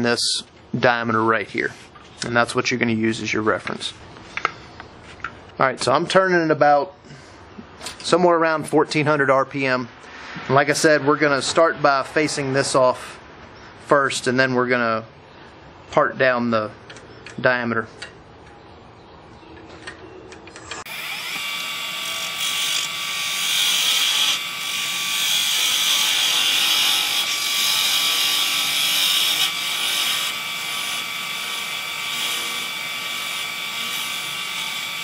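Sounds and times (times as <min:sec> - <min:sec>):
lathe tool cutting wood: 0:20.8 - 0:35.0.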